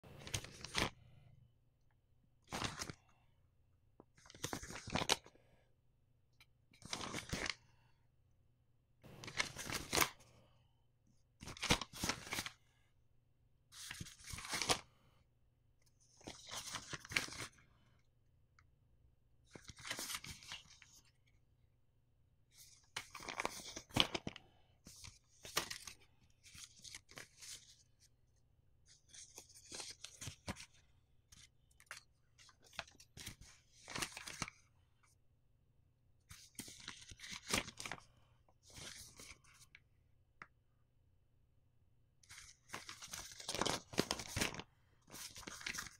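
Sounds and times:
paper folding and rustling: 0:00.1 - 0:01.2, 0:02.5 - 0:03.0, 0:04.0 - 0:05.4, 0:06.7 - 0:07.8, 0:09.1 - 0:10.3, 0:11.4 - 0:12.6, 0:13.7 - 0:15.0, 0:15.9 - 0:17.6, 0:19.4 - 0:21.2, 0:22.5 - 0:28.2, 0:28.8 - 0:34.7, 0:36.3 - 0:39.8, 0:42.2 - 0:45.9.

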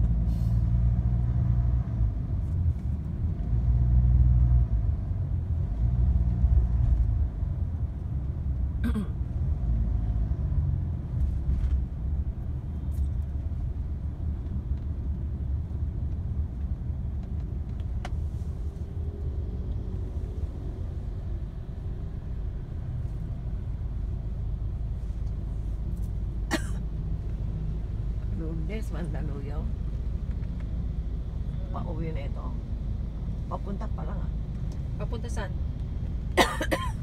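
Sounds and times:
car engine and tyre noise: 0:00.0 - 0:37.0.

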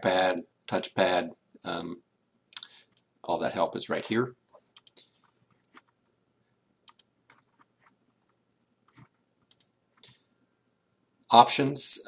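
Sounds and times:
computer mouse clicks: 0:04.5 - 0:06.0, 0:06.8 - 0:10.2.

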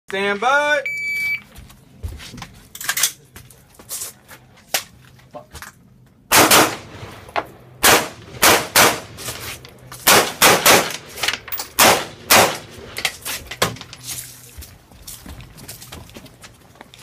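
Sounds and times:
rifle gunshots: 0:06.3 - 0:07.2, 0:07.8 - 0:09.2, 0:10.0 - 0:11.2, 0:11.8 - 0:12.7.

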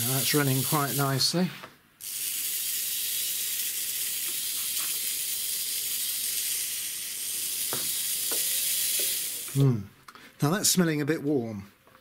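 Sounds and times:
small electric motor running: 0:00.0 - 0:01.3, 0:02.0 - 0:09.6.

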